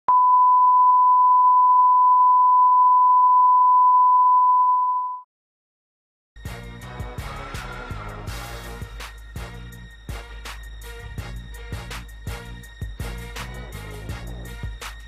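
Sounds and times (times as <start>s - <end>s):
steady test tone beep: 0.1s - 5.3s
music: 6.4s - 15.0s.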